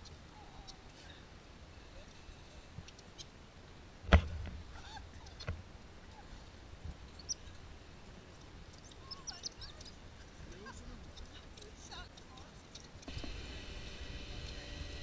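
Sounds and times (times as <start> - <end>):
animals chirping and squeaking: 0.0 - 1.0, 4.7 - 6.4, 7.0 - 7.7, 8.7 - 13.2.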